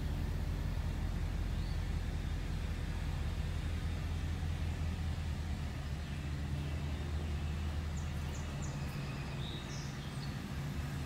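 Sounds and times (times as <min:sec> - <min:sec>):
truck engine idling: 0:00.0 - 0:11.0
bird chirps: 0:07.4 - 0:10.4.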